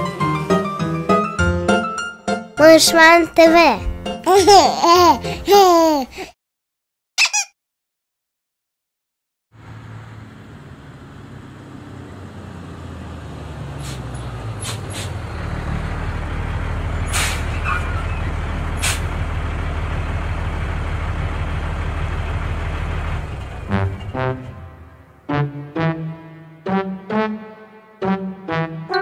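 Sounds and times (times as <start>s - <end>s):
truck engine running: 9.6s - 25.2s
air brake hisses: 13.8s - 15.2s, 17.1s - 17.7s, 18.8s - 19.1s.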